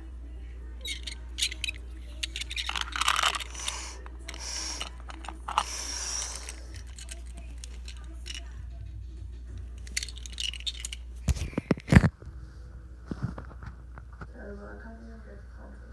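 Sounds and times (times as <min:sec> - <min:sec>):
toy truck clicking on plastic: 0:00.8 - 0:08.6, 0:09.8 - 0:11.0.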